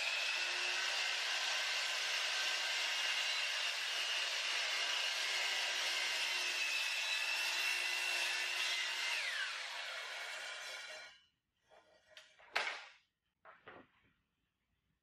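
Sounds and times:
miter saw cutting wood: 0.0 - 11.1.

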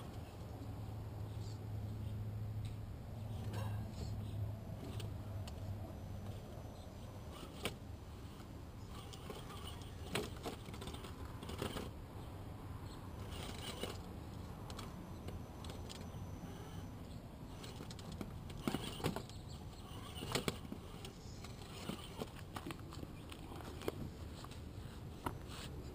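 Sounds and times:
rc car motor and gear whir: 7.3 - 12.0, 12.8 - 25.7
clicks and knocks from tires: 8.4 - 12.0, 17.5 - 24.6.

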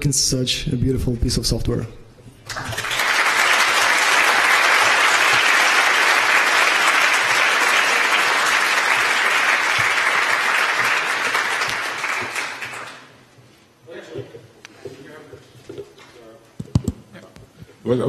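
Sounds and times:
large audience applauding: 2.4 - 13.2.

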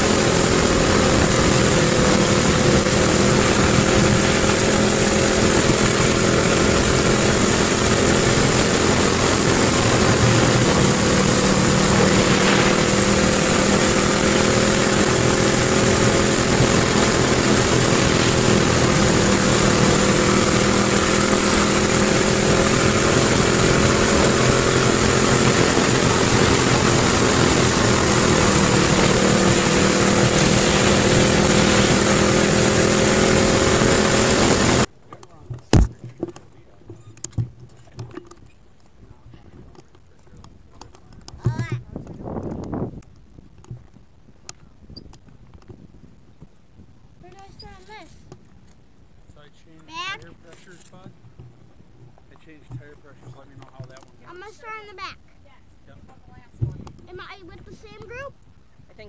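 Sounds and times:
kart engine running: 0.0 - 36.5, 39.1 - 43.0, 47.2 - 48.6, 49.6 - 55.6, 56.2 - 58.4
wind rushing over microphone: 41.1 - 47.8.

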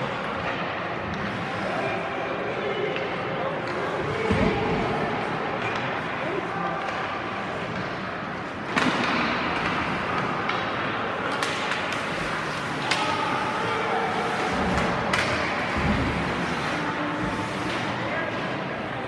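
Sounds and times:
skates and arena noise: 0.0 - 19.0
sharp knocks of sticks and puck: 6.8 - 13.4, 14.5 - 16.3.

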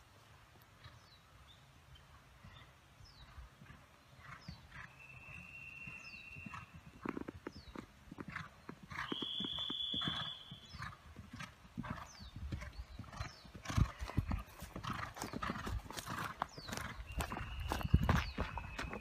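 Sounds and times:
high whistle-like tone: 5.0 - 6.6, 9.0 - 10.6, 17.2 - 19.0
horse hoofbeats on turf: 5.9 - 19.0.

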